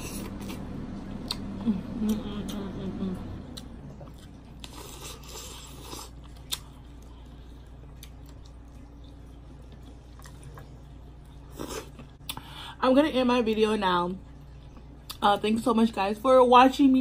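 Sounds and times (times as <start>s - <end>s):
soft chewing: 0.0s - 12.5s, 14.2s - 15.2s.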